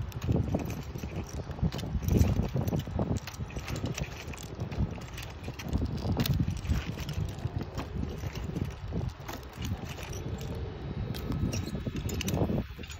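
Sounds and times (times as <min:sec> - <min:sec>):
belt hardware clinking: 0:00.0 - 0:12.9
wind buffeting microphone: 0:00.0 - 0:12.9.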